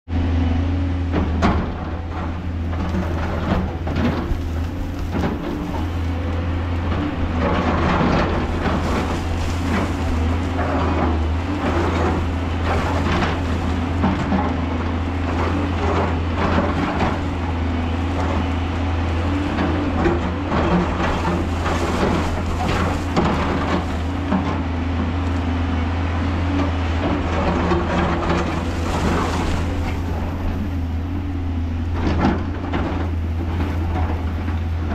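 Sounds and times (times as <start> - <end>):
excavator diesel engine running: 0.1 - 34.9
bucket scraping rock and earth: 1.3 - 25.2, 27.0 - 34.9
loose dirt falling: 2.4 - 25.5.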